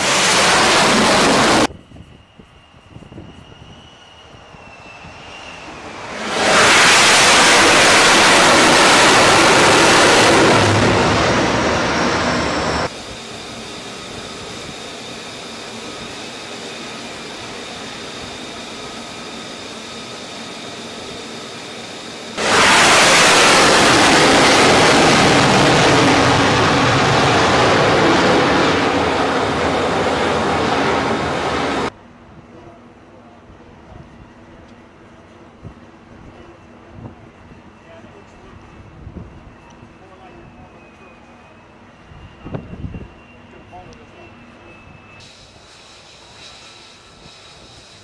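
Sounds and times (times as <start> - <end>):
loud jet engine noise: 0.0 - 32.0, 33.5 - 48.0.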